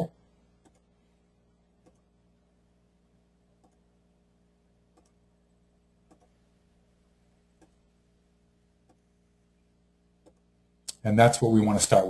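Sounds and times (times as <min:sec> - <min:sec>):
low steady hum: 0:00.0 - 0:12.0
computer mouse clicks: 0:00.6 - 0:00.9, 0:01.8 - 0:02.1, 0:03.6 - 0:03.9, 0:04.9 - 0:05.2, 0:06.0 - 0:06.4, 0:07.6 - 0:07.8, 0:10.2 - 0:11.0.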